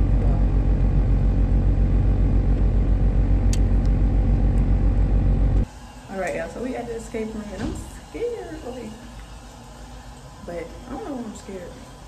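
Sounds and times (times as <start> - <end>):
car engine rumble inside cabin: 0.0 - 5.7.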